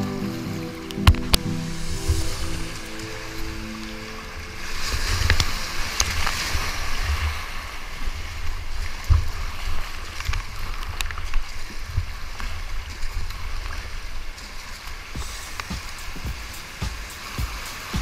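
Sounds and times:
paddle strokes splashing: 0:00.0 - 0:18.0
whitewater rushing: 0:00.0 - 0:18.0.

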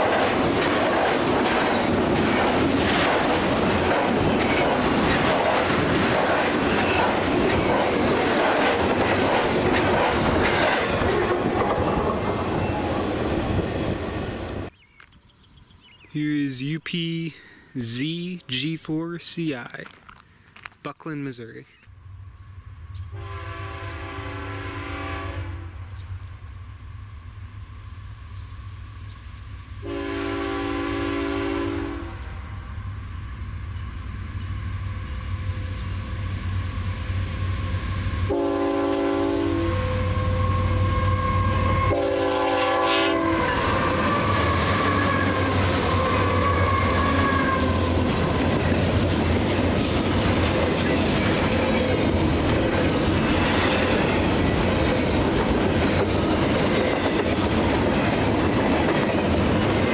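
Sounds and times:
train wheels clattering on rails: 0:00.0 - 0:13.2, 0:43.5 - 0:59.9
diesel locomotives passing: 0:00.0 - 0:14.7, 0:21.9 - 0:59.9
train horn blasts: 0:23.1 - 0:25.8, 0:29.8 - 0:32.3, 0:38.3 - 0:47.9.

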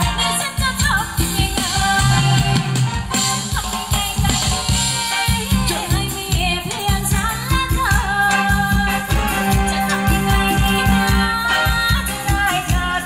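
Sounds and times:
bass: 0:00.0 - 0:13.0
electric guitar: 0:00.0 - 0:13.0
person singing: 0:00.0 - 0:13.0
steady dance beat: 0:05.1 - 0:13.0.

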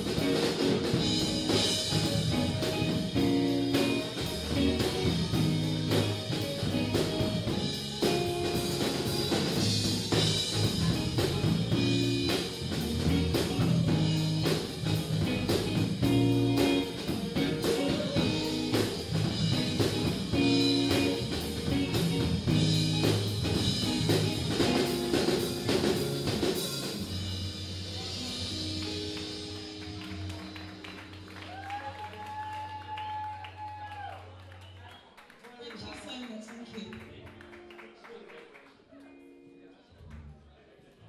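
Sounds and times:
drum kit beat: 0:00.0 - 0:32.2
electric guitar: 0:00.0 - 0:33.0
bass guitar: 0:00.0 - 0:34.1.

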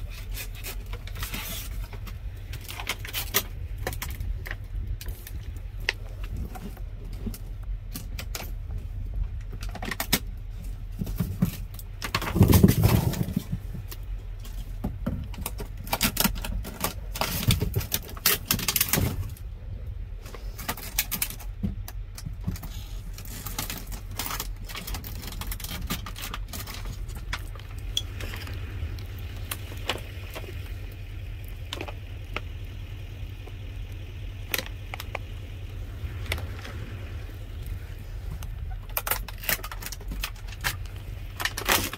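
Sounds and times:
steady low hum: 0:00.0 - 0:41.9
packaging rustling and crinkling: 0:09.6 - 0:19.4, 0:20.2 - 0:32.8, 0:36.1 - 0:41.9.

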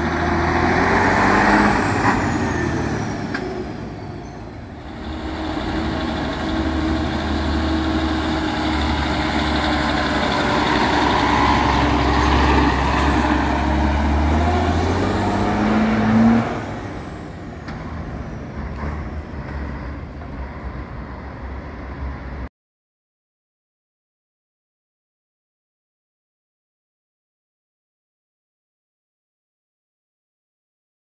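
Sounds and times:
truck diesel engine revving: 0:00.0 - 0:22.4.

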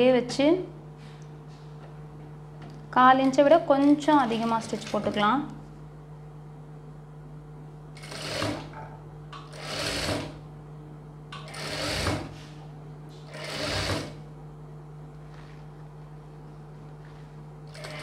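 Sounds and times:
low machine hum: 0:00.0 - 0:18.0
sewing machine stitching: 0:08.0 - 0:08.7, 0:09.4 - 0:10.4, 0:11.4 - 0:12.4, 0:13.3 - 0:14.2, 0:17.7 - 0:18.0.

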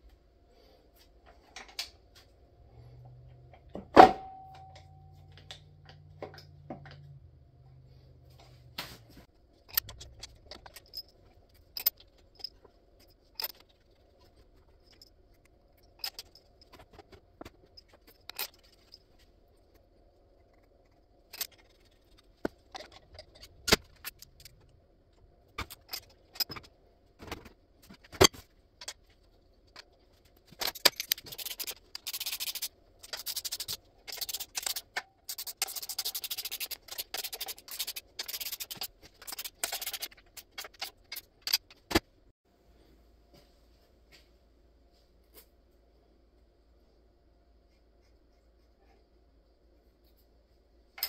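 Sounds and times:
metal tools clicking and tapping: 0:09.7 - 0:19.1, 0:21.3 - 0:24.8, 0:25.5 - 0:26.7, 0:30.5 - 0:42.0
rapid metal scraping: 0:30.6 - 0:41.9.

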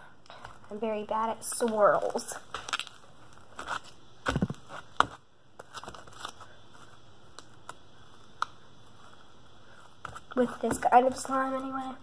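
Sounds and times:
slime crackling and popping: 0:01.5 - 0:03.8.

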